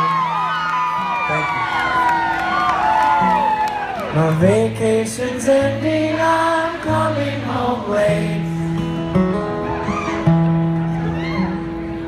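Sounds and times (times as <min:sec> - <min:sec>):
acoustic guitar strumming: 0:03.2 - 0:12.0
crowd singing along: 0:04.1 - 0:09.3.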